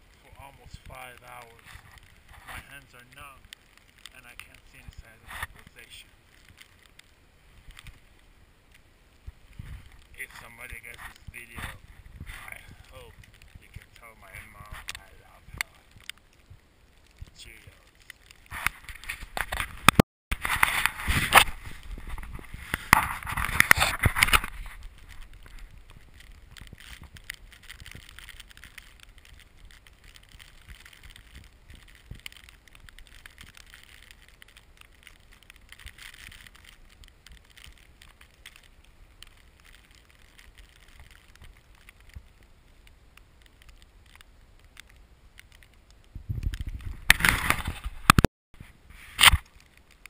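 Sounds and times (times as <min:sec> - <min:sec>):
skis gliding through snow: 0:00.0 - 0:06.8, 0:09.2 - 0:16.6, 0:17.2 - 0:42.3, 0:46.1 - 0:49.6
snow crunches: 0:00.0 - 0:50.0
bumps and rubbing on microphone: 0:00.3 - 0:06.7, 0:09.2 - 0:16.6, 0:17.2 - 0:34.3, 0:46.1 - 0:49.5
wind rumble on microphone: 0:09.2 - 0:17.8, 0:18.4 - 0:34.2, 0:46.0 - 0:49.3.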